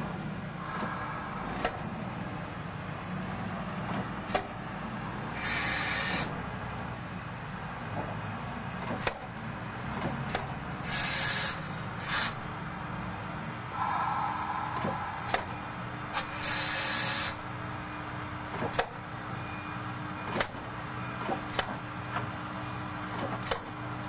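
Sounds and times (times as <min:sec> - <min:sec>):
air hissing bursts: 0:05.2 - 0:06.4, 0:10.8 - 0:12.6, 0:13.7 - 0:17.5
sharp metallic clicks: 0:10.0 - 0:11.1, 0:14.8 - 0:15.6
low rumble: 0:13.7 - 0:16.2.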